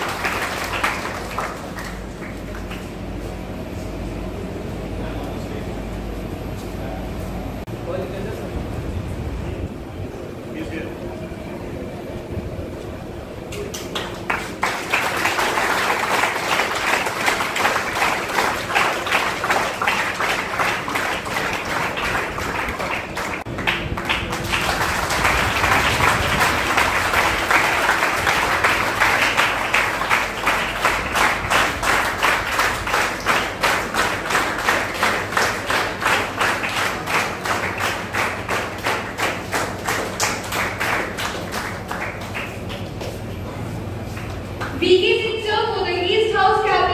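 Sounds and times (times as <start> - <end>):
audience applauding: 0.0 - 3.4, 13.5 - 44.8.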